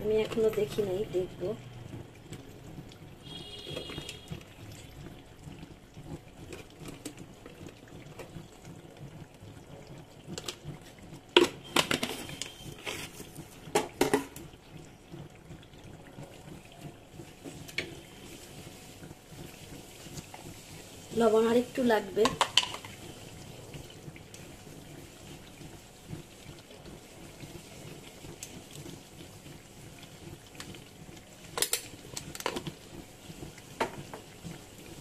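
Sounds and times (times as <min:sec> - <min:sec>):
curry bubbling in pan: 0:00.0 - 0:35.0.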